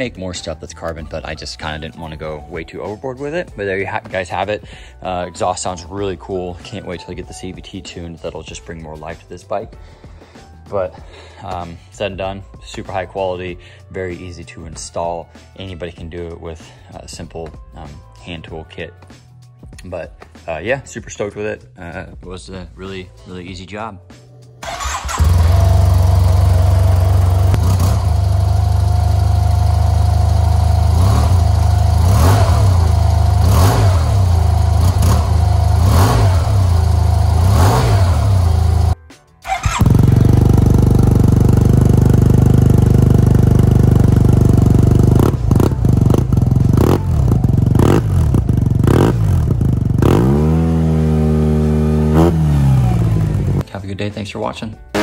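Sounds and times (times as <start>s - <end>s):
motorcycle engine droning: 24.6s - 53.6s.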